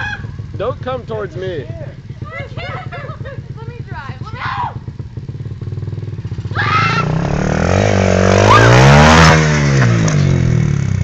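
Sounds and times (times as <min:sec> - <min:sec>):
person shouting: 0:00.0 - 0:00.4, 0:04.3 - 0:04.8, 0:06.5 - 0:07.2
dirt bike engine revving: 0:00.0 - 0:11.0.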